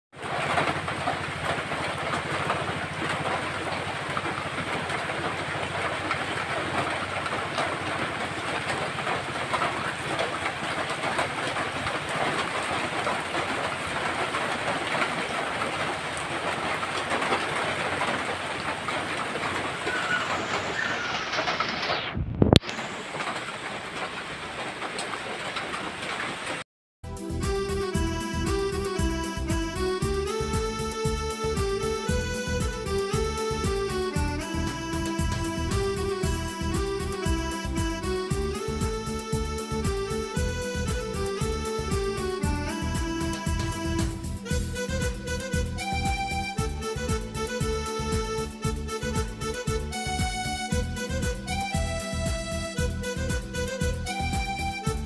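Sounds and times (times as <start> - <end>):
heavy rain on wet road: 0.2 - 26.6.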